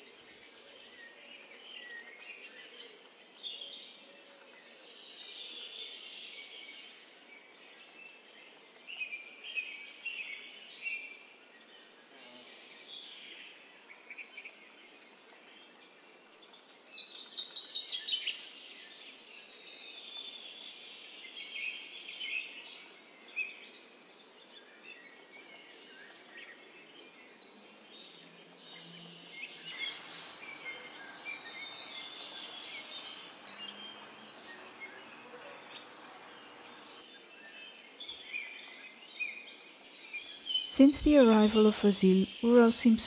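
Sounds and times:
small birds chirping: 25.0s - 43.0s
steady background hiss: 29.5s - 37.2s, 40.7s - 43.0s.

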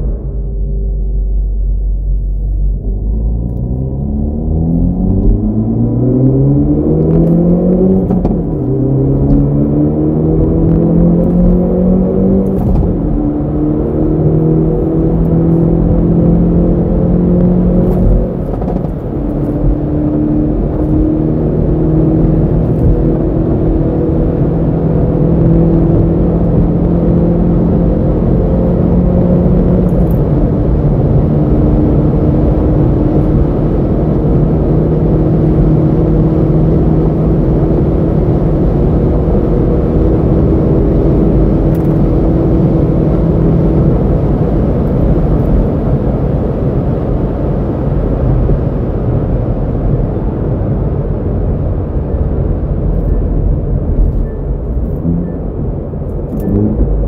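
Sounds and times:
car engine drone from cabin: 0.0s - 57.0s.

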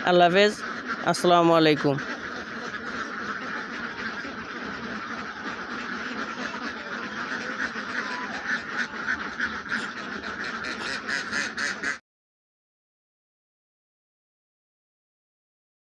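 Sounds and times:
flock of ducks quacking: 0.0s - 12.0s.

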